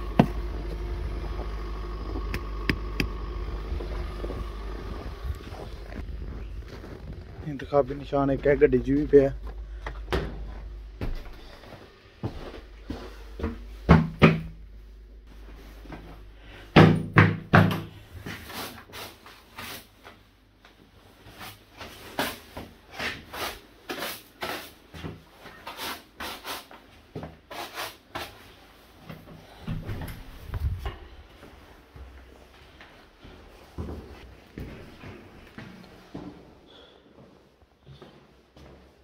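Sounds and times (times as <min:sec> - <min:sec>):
boots crunching through snow: 0:00.3 - 0:09.8.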